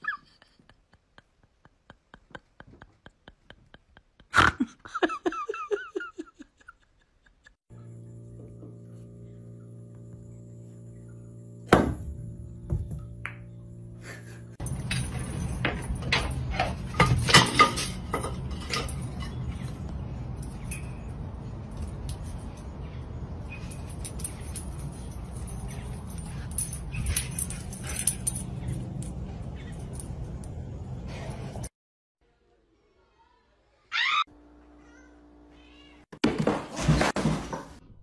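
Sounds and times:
low background hum: 4.9s - 31.7s
leash jangling: 14.6s - 30.8s.

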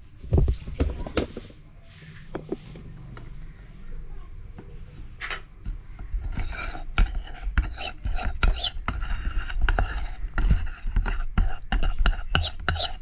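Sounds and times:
metal spoon scraping steel bowl: 5.7s - 13.0s.

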